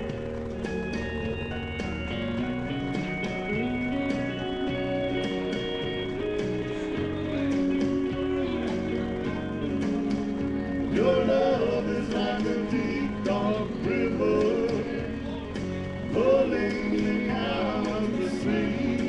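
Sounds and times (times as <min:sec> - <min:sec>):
backing track music: 0:00.0 - 0:19.0
man singing karaoke: 0:10.9 - 0:19.0.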